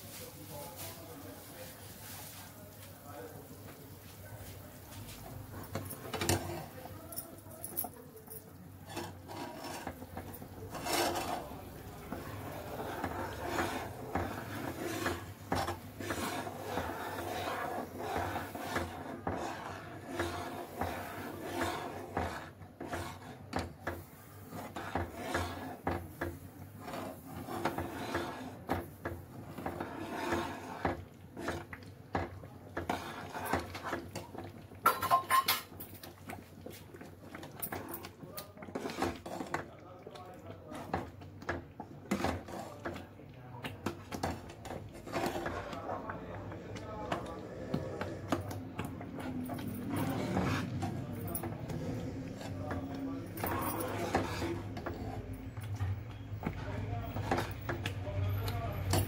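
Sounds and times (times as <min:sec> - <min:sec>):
ladle stirring and scraping pan: 0:00.0 - 0:07.4, 0:08.4 - 0:59.0
metal clinking on pan: 0:34.8 - 0:35.7.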